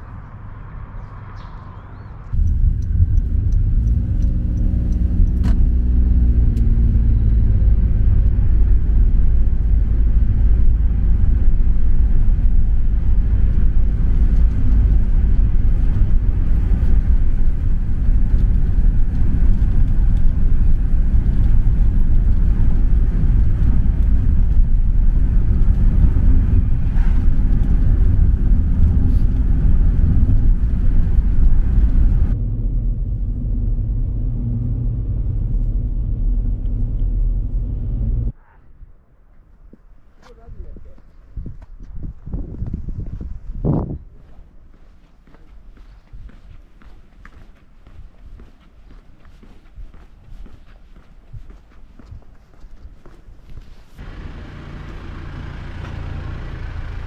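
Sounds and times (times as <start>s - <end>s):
vehicle engine rumbling: 0.0s - 51.4s, 52.2s - 57.0s.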